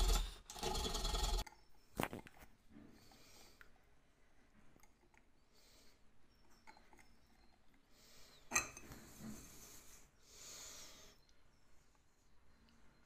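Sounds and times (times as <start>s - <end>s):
small metal gears clicking: 0.0s - 1.5s.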